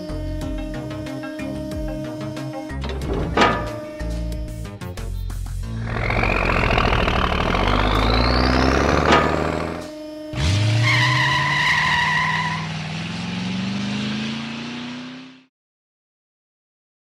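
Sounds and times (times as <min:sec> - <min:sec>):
cartoon truck engine revving: 0:00.0 - 0:15.5
tyre squeal: 0:05.8 - 0:12.7.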